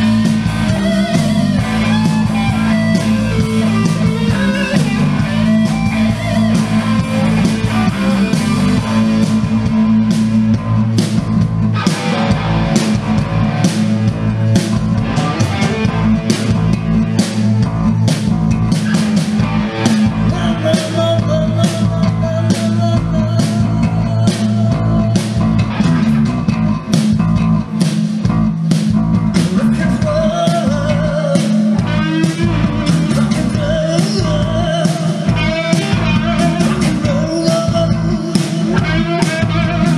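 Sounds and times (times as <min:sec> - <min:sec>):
wavering lead melody: 0:00.0 - 0:20.8
bass guitar: 0:00.0 - 0:39.9
electric guitars: 0:00.0 - 0:39.9
steady drum beat: 0:00.0 - 0:39.9.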